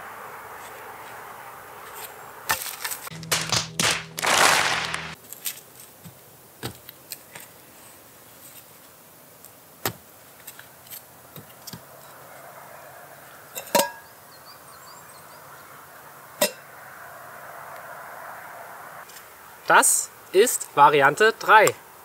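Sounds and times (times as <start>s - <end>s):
wooden sticks knocking: 3.1s - 5.2s.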